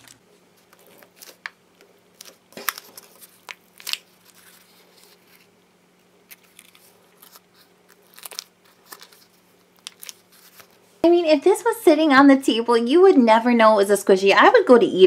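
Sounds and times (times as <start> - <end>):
paper wrapper crinkling: 0.0 - 5.6, 6.2 - 10.9.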